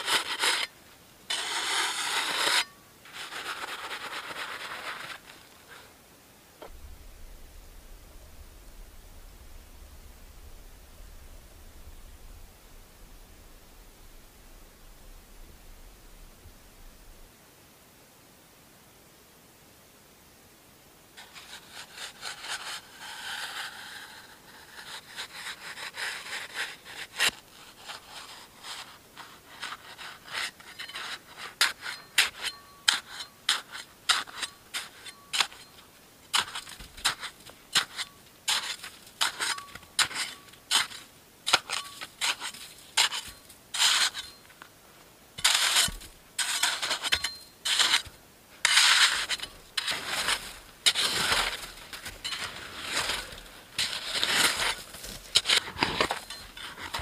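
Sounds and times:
shovel scraping packed snow: 0:00.0 - 0:06.0, 0:21.2 - 0:44.5, 0:45.4 - 0:57.0.

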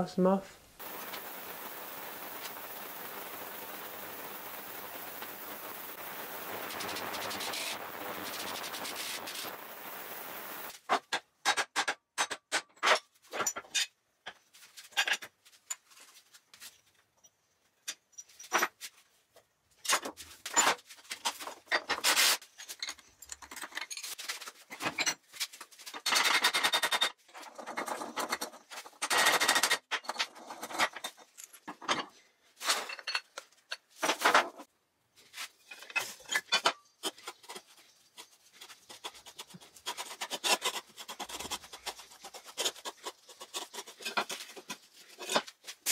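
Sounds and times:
noisy bursts: 0:00.8 - 0:10.7.

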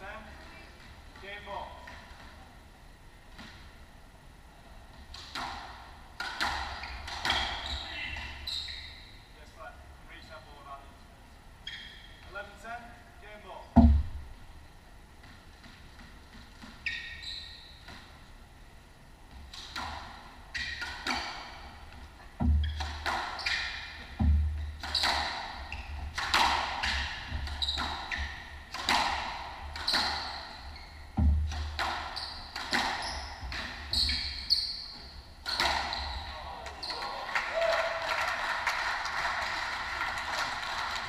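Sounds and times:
racquet striking ball: 0:05.1 - 0:07.6, 0:19.5 - 0:34.5, 0:35.4 - 0:36.1
shoes squeaking on floor: 0:06.7 - 0:09.3, 0:11.6 - 0:12.4, 0:16.6 - 0:18.2, 0:22.4 - 0:26.2, 0:26.8 - 0:29.0, 0:29.6 - 0:37.0
heavy thuds: 0:13.7 - 0:14.4, 0:31.0 - 0:31.9
ball hitting walls: 0:22.4 - 0:30.3, 0:31.1 - 0:34.1.

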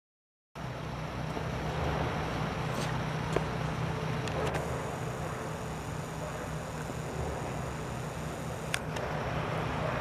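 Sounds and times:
low engine-like hum: 0:00.6 - 0:10.0
short clicks: 0:08.4 - 0:09.1.

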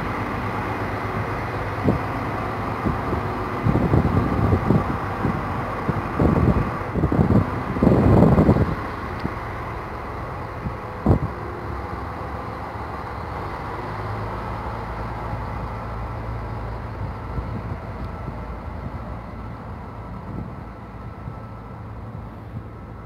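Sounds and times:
diesel railcar engines running: 0:00.0 - 0:23.0.

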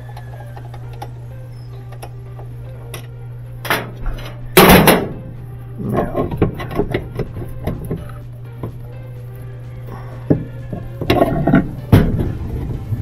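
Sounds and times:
steady low hum: 0:00.0 - 0:13.0
metal parts clanking: 0:00.1 - 0:08.8, 0:10.2 - 0:12.5
loud clatter: 0:03.7 - 0:05.2.

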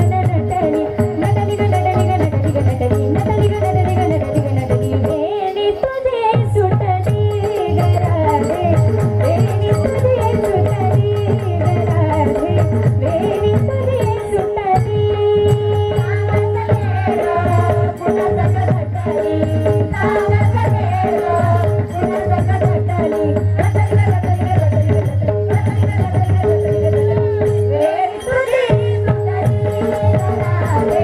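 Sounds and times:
harmonium: 0:00.0 - 0:31.0
rapid rattling percussion: 0:00.0 - 0:31.0
women singing devotional song: 0:00.0 - 0:31.0.

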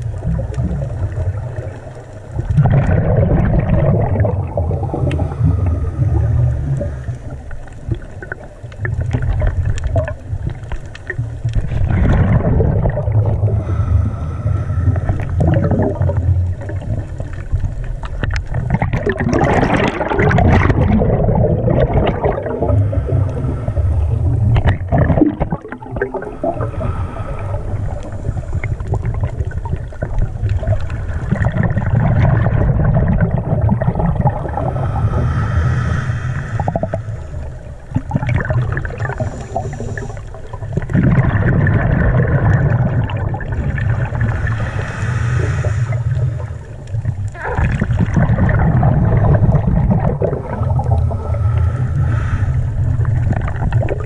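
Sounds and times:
bubbling and splashing from fin kick: 0:00.0 - 0:05.7, 0:07.8 - 0:13.6, 0:15.0 - 0:22.9, 0:24.1 - 0:26.7, 0:28.6 - 0:34.7, 0:37.9 - 0:39.2, 0:40.5 - 0:44.4, 0:46.9 - 0:51.2, 0:52.9 - 0:54.0
water rushing and gurgling: 0:00.0 - 0:54.0.

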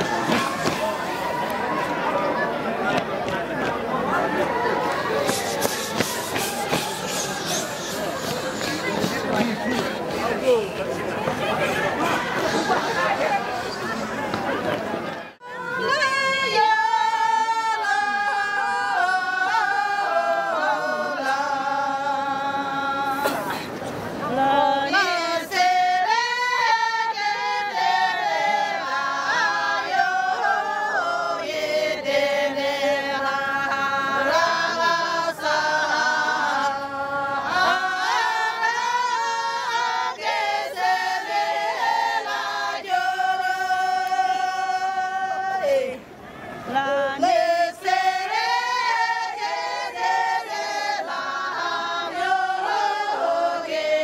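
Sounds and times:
women singing in unison: 0:15.4 - 0:23.6, 0:24.3 - 0:46.1, 0:46.7 - 0:54.0.

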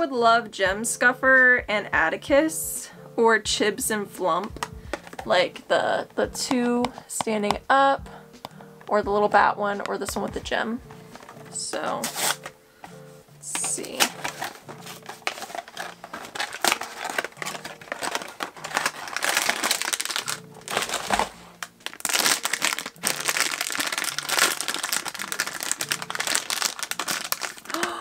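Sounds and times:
foil wrapper crinkling: 0:11.2 - 0:12.5, 0:13.6 - 0:28.0.

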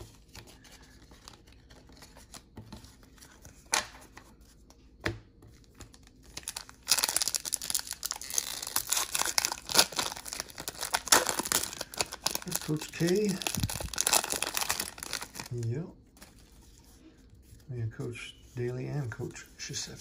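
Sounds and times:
wrapper tearing and crinkling: 0:06.4 - 0:15.6.

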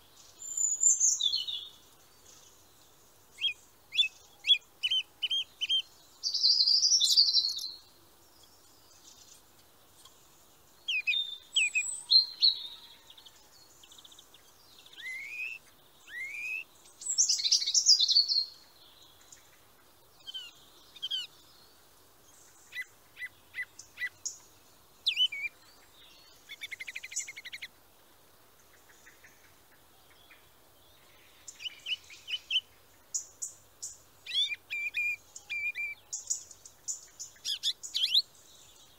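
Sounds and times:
songbirds singing: 0:00.0 - 0:38.9.

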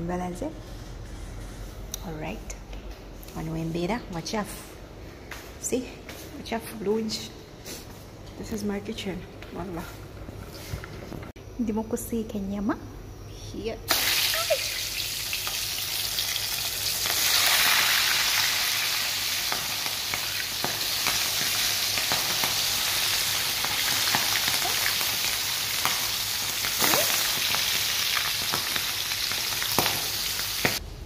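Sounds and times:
meat sizzling in hot oil: 0:13.9 - 0:30.8.

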